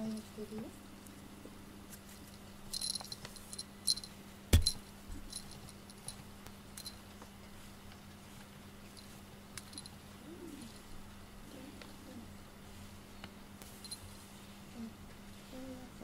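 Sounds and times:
small bell jingling: 2.3s - 6.2s, 13.8s - 14.1s
sharp knock: 4.5s - 4.8s.

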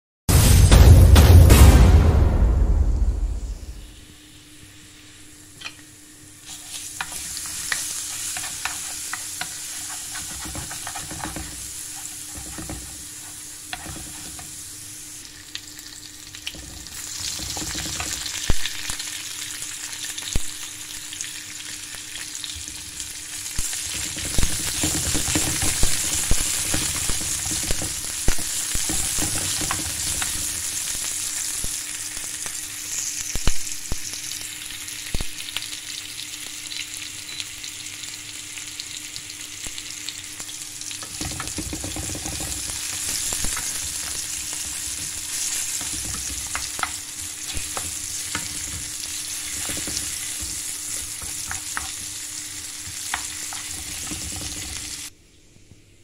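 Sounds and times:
garlic sizzling in hot oil: 3.6s - 55.1s
wooden spoon scraping a pan: 6.4s - 14.6s, 28.8s - 30.6s, 41.0s - 52.1s, 52.8s - 55.1s.

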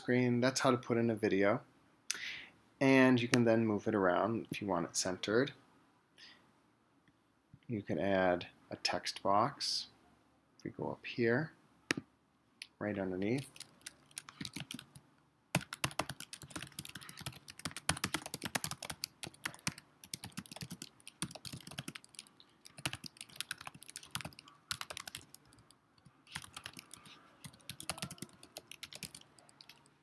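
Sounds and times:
computer keyboard typing: 13.4s - 30.0s.

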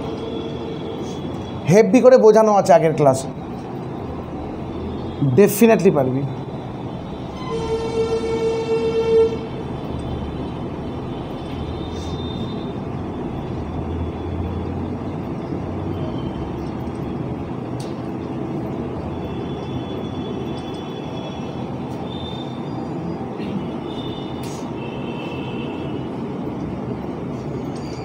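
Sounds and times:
traffic noise: 0.0s - 28.0s
horn toot: 7.3s - 9.6s.

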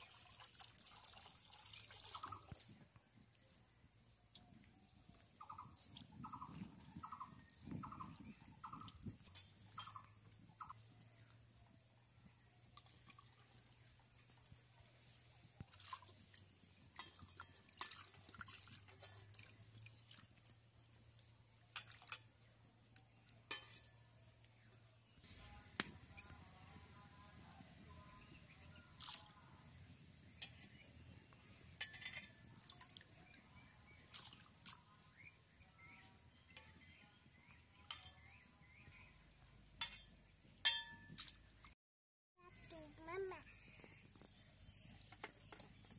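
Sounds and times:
water trickling: 0.0s - 2.7s
clinks on metal dishes: 23.5s - 24.0s, 31.8s - 32.4s.

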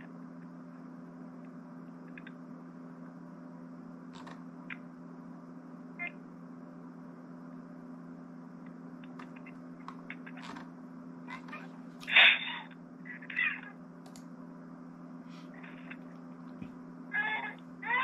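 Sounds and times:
steady low hum: 0.0s - 18.0s
faint clicks: 14.0s - 14.3s.

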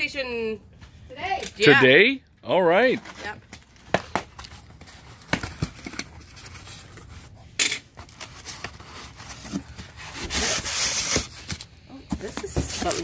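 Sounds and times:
styrofoam rubbing: 8.3s - 11.6s.

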